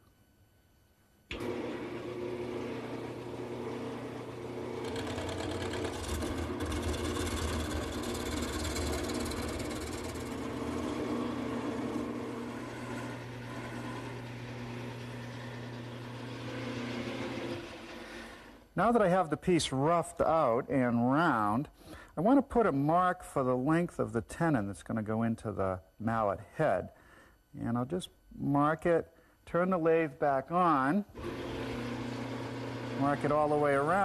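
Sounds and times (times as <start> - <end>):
gouge cutting spinning wood: 1.3 - 18.5, 31.2 - 34.0
lathe motor hum: 1.3 - 18.6, 31.2 - 34.0.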